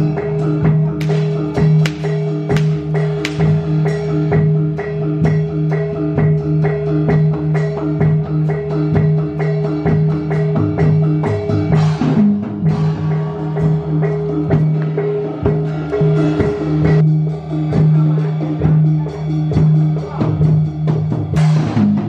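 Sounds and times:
tuned percussion pattern: 0.9 - 7.6
drum strokes: 1.0 - 4.2.

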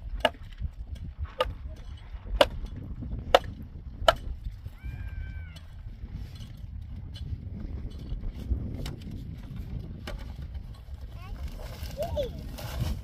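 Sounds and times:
hand tool striking stony ground: 0.0 - 4.6.

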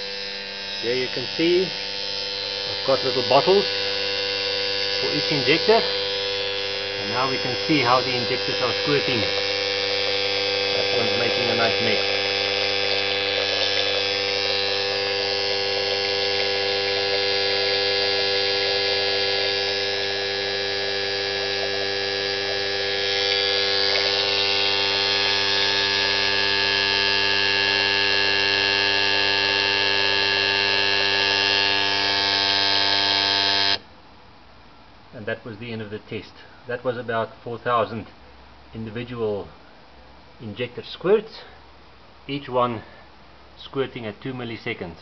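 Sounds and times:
fuel injectors buzzing: 0.0 - 33.9.

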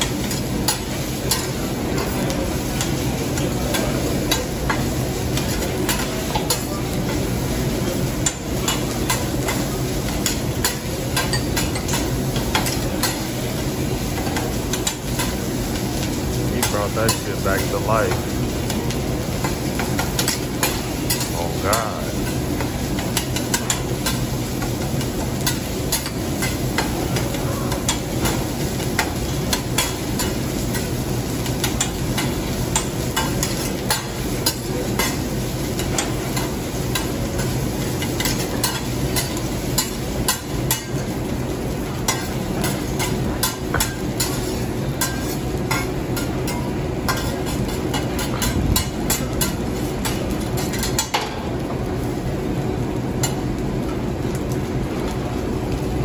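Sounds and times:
rice sizzling: 0.0 - 56.0.

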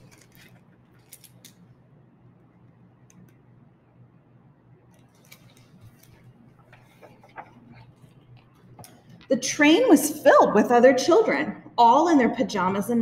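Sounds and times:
book pages rustling: 0.0 - 1.5, 5.0 - 9.2.

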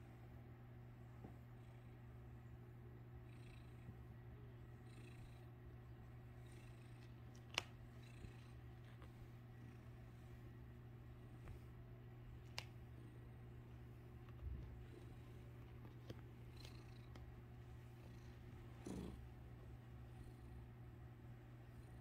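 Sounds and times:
cat purring: 1.4 - 7.2, 7.8 - 22.0.

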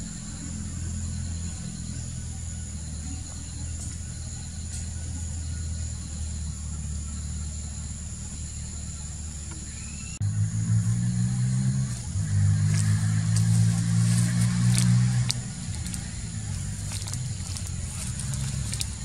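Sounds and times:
faint high steady tone: 0.0 - 10.2
engine humming: 0.0 - 19.0.

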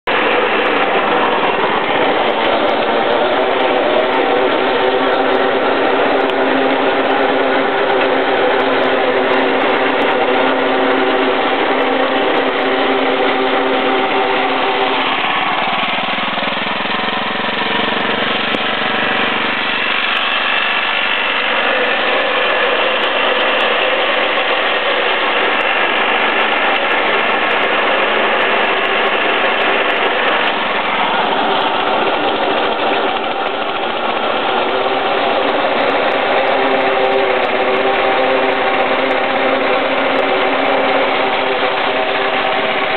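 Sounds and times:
small engine running: 0.0 - 42.9.

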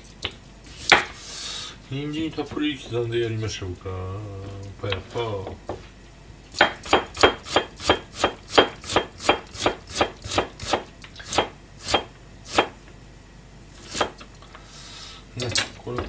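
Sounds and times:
knife chopping on plastic board: 6.6 - 11.5.

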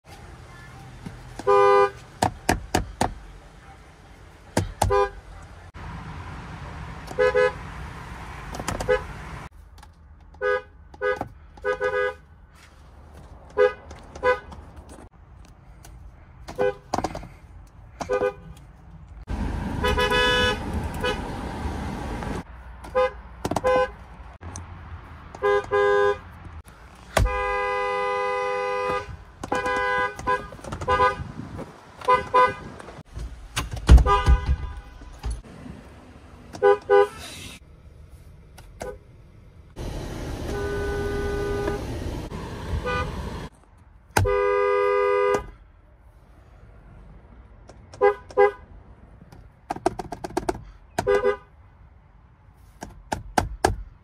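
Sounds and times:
car horn honking: 1.4 - 2.0, 4.6 - 5.3, 7.1 - 7.7, 8.8 - 9.4, 10.4 - 12.2, 13.5 - 14.6, 16.5 - 16.9, 18.0 - 18.6, 19.8 - 21.3, 22.9 - 24.0, 25.4 - 26.3, 27.1 - 31.4, 32.0 - 32.8, 33.9 - 35.3, 36.6 - 37.6, 40.2 - 43.5, 44.2 - 45.6, 48.0 - 48.6, 51.0 - 51.5.

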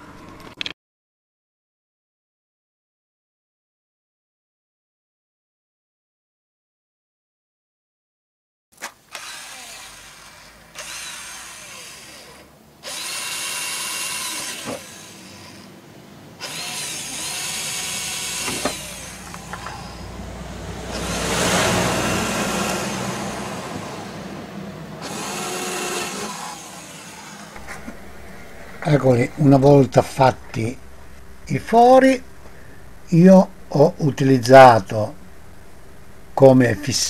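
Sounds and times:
electric drill boring: 9.1 - 15.8, 16.4 - 20.2, 20.9 - 24.3, 25.0 - 32.8.

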